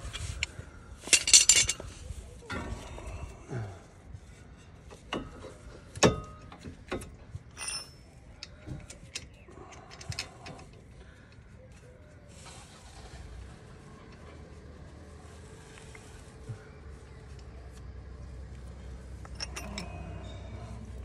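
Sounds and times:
metal tools and parts clinking: 0.0s - 3.1s, 4.6s - 11.4s, 19.0s - 21.0s.

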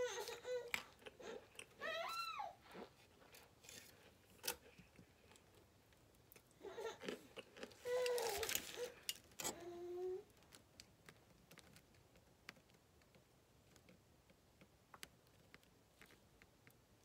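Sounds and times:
cornstarch crunching and squeaking: 6.8s - 9.6s.

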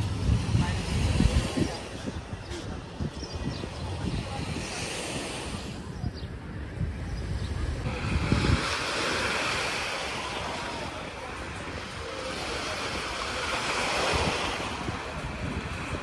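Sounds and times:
small waves breaking on sand: 0.0s - 6.0s, 7.6s - 16.0s
wind buffeting microphone: 0.0s - 16.0s.

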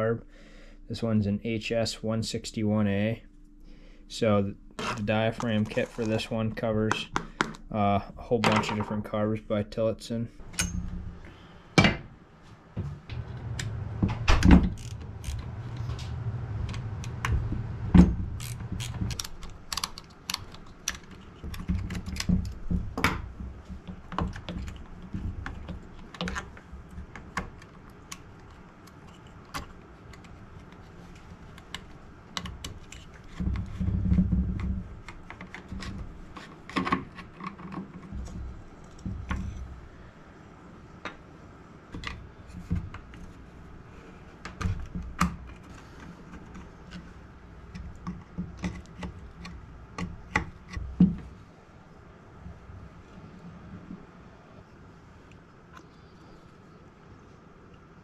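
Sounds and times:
low rumbling handling noise: 10.3s - 56.4s.

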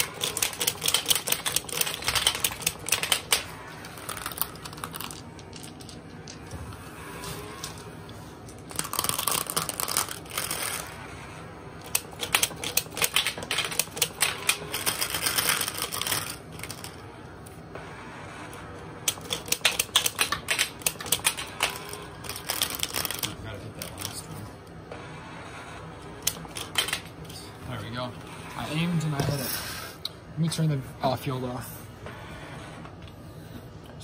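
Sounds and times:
toy marble shooter clicking: 0.0s - 6.4s, 19.1s - 23.3s
glass marbles clacking and rolling: 0.2s - 6.6s.

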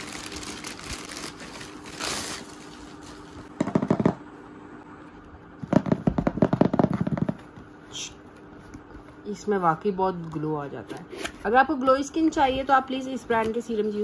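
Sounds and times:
plastic mailer crinkling and tearing: 0.0s - 3.5s.

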